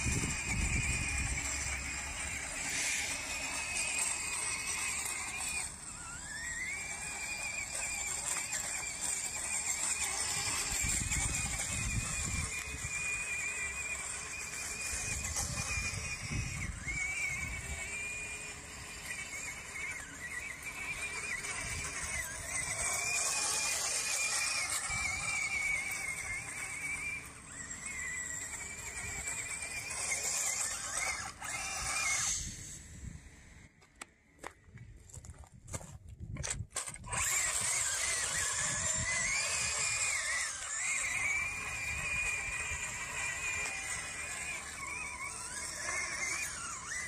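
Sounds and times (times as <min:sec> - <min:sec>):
electric motor whining: 0:00.0 - 0:47.0.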